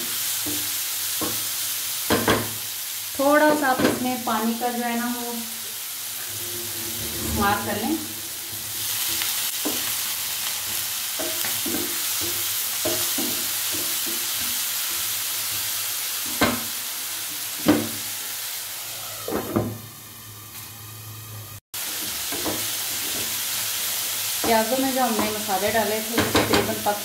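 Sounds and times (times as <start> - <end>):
masala sizzling in a pan: 0.0 - 27.0
spatula scraping a pan: 6.0 - 15.7.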